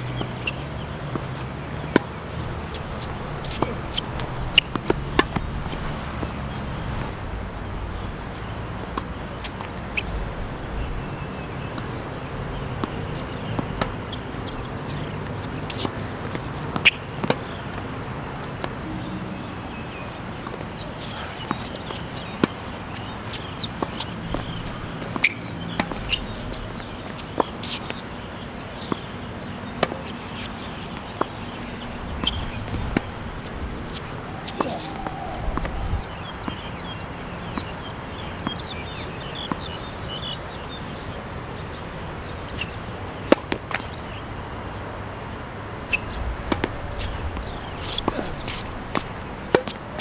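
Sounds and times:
tennis ball bouncing: 0.1s - 7.2s, 8.8s - 10.0s, 12.6s - 41.1s, 42.5s - 44.0s, 45.9s - 49.8s
rackets striking tennis ball: 0.2s - 7.1s, 12.8s - 19.1s, 20.4s - 28.2s, 28.8s - 37.8s, 45.9s - 49.8s.

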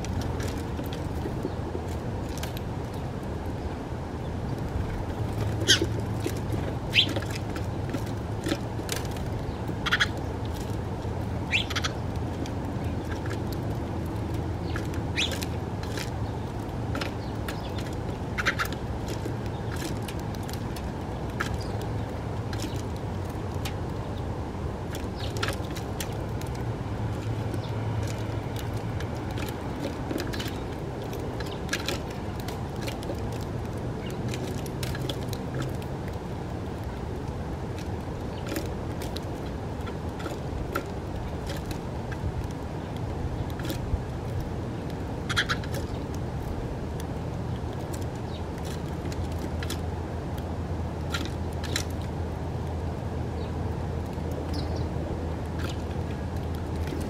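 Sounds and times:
sparrows chirping: 0.0s - 33.1s, 33.9s - 35.7s, 38.2s - 38.6s, 44.7s - 46.2s, 48.2s - 48.9s, 53.3s - 53.6s, 54.4s - 55.0s
low traffic rumble: 0.0s - 57.0s.

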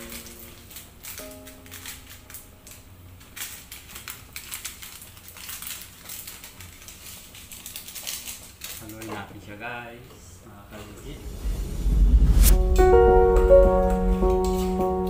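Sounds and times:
crackling and clicking: 0.0s - 9.2s, 11.3s - 15.0s
low steady hum: 10.6s - 15.0s.

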